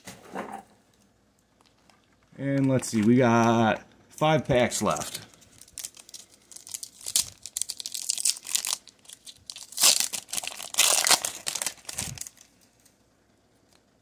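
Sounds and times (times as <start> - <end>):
foil wrapper crinkling and tearing: 4.8 - 12.9.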